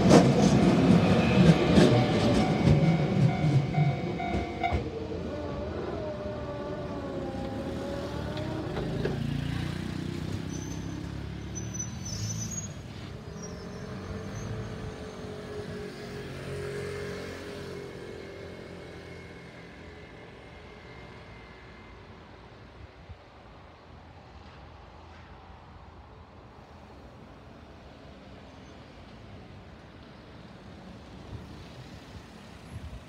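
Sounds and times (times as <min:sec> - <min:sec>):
train low rumble: 0:00.0 - 0:11.0
electric train pulling away: 0:00.0 - 0:22.8.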